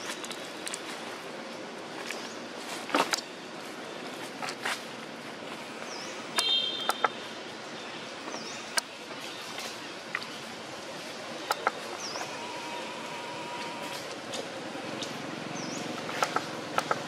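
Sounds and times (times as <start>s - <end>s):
sharp ticks and snaps: 14.0s - 17.0s.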